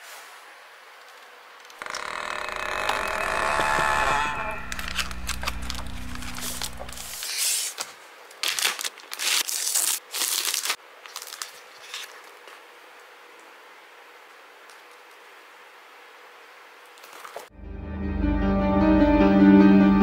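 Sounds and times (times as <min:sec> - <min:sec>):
low steady hum: 0:01.8 - 0:07.2
plastic bag crinkling: 0:08.4 - 0:12.5.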